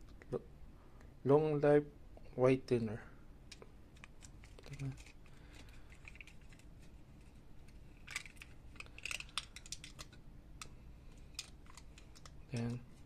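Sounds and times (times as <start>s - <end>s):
plastic cup crinkling and clicking: 3.5s - 13.0s.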